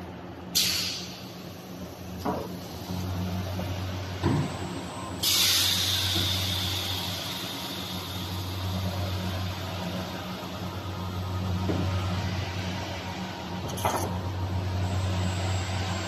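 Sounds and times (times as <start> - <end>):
compressed air hiss: 0.6 - 1.4, 5.2 - 8.7.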